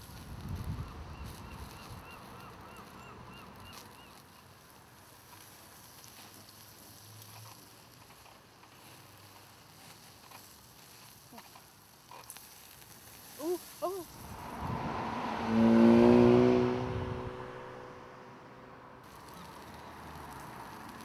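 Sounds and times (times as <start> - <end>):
meat sizzling on grill: 0.0 - 17.6, 19.0 - 21.0
rapid squeaky calls: 0.8 - 4.5
utensil clicking on grill mesh: 1.2 - 14.0, 19.1 - 21.0.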